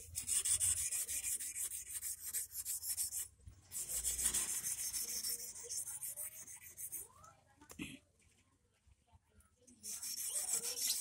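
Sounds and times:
hand file rasping on metal: 0.0 - 7.0, 9.8 - 11.0.

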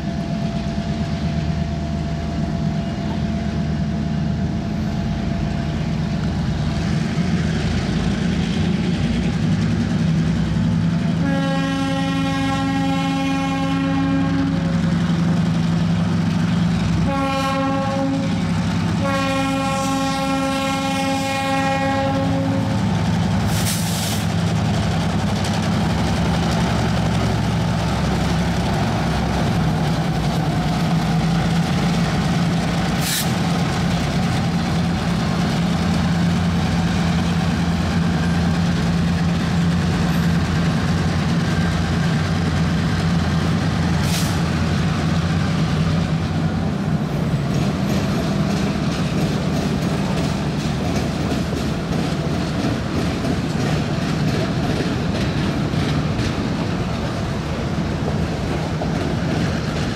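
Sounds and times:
diesel locomotive engines running: 0.0 - 59.9
locomotive horn blast: 11.2 - 14.8, 17.0 - 22.9.

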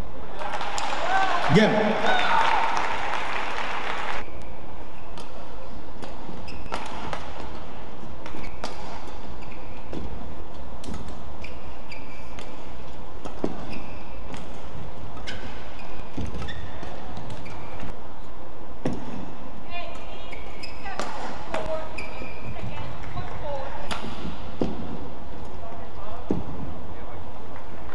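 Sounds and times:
low hum of hall: 0.0 - 27.9
shoes squeaking on court: 5.0 - 19.2, 19.9 - 25.0
rackets hitting shuttlecock: 5.1 - 7.6, 8.2 - 9.2.

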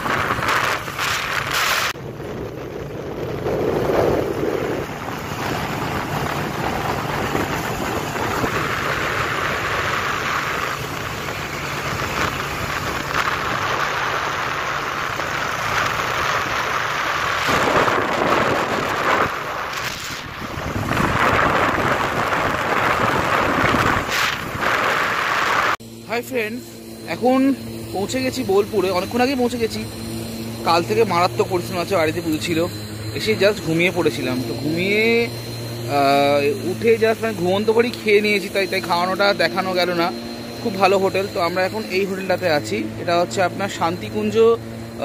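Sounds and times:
wind rushing over microphone: 0.0 - 25.8
road and engine noise: 0.0 - 45.0.

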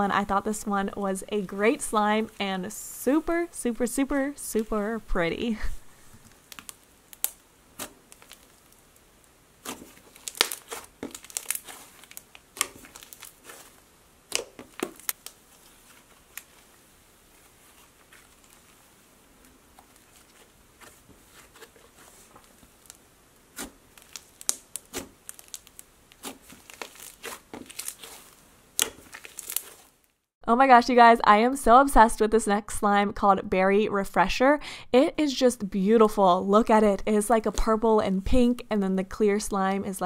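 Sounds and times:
slime crackling and popping: 6.3 - 19.0, 22.4 - 30.2.

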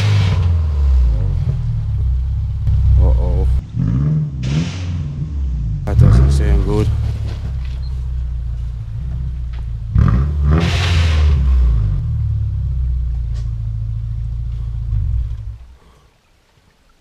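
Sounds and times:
car engine revving: 0.0 - 15.9
loud rushing noise: 2.7 - 7.4, 10.4 - 11.9.

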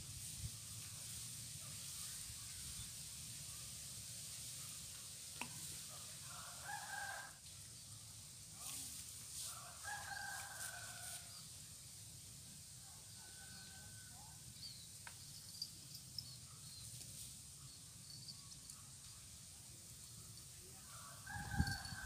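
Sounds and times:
rooster crowing faintly: 6.0 - 7.4, 9.4 - 11.4, 20.8 - 22.0
small birds chirping: 14.6 - 17.0.

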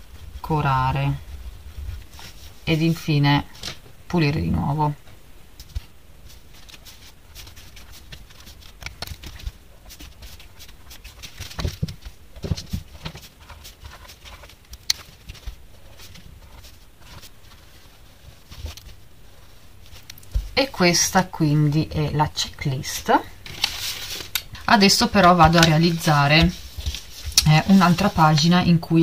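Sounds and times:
markers scratching on paper: 6.3 - 18.5, 24.8 - 28.6.

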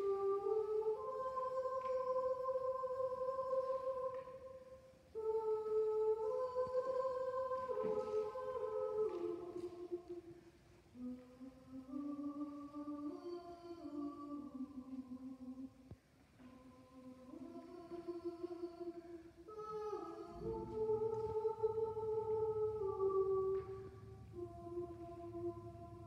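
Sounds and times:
choir singing sustained chords: 0.0 - 26.0.

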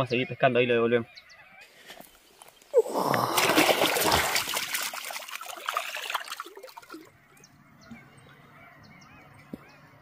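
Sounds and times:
water splashing and trickling: 2.2 - 7.5.

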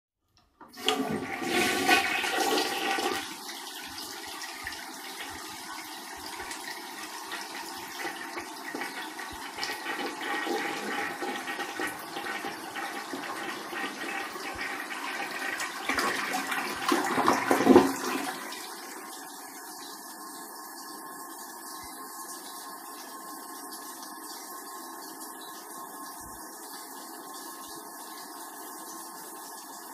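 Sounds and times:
tank refilling with water: 0.4 - 29.9
toilet flushing: 0.6 - 29.9.

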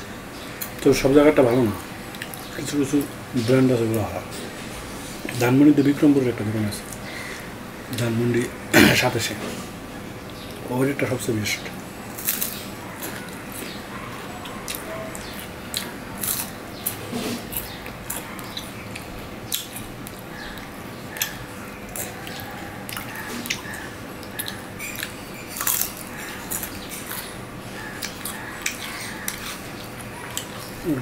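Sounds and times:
man chewing wet crunches: 2.0 - 3.1, 11.9 - 31.0.

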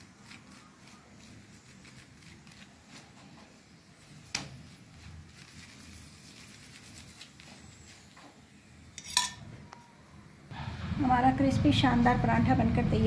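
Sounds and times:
metal spoon tapping and scraping: 9.0 - 9.5
sharp metallic clink: 9.0 - 9.6.

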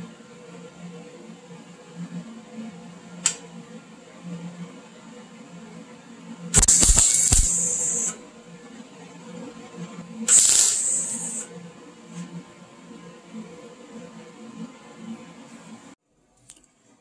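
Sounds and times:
welder arc crackling and hissing: 6.6 - 8.2, 10.3 - 11.5.

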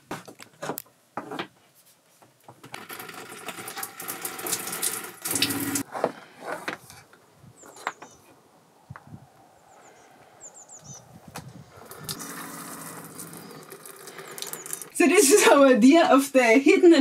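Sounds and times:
shower water splashing on wood: 2.8 - 5.8, 11.9 - 15.1.

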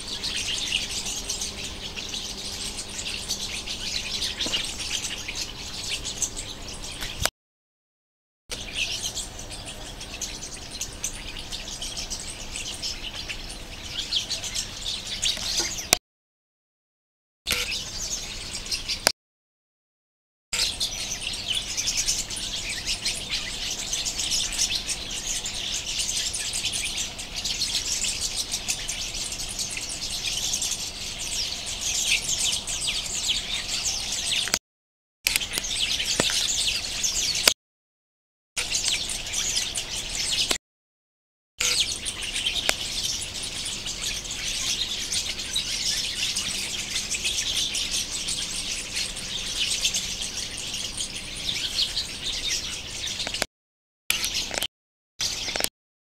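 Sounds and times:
small birds chirping: 0.0 - 7.3, 8.5 - 16.0, 17.5 - 19.1, 20.6 - 34.6, 35.3 - 37.6, 38.6 - 40.6, 41.6 - 53.5, 54.1 - 55.7.

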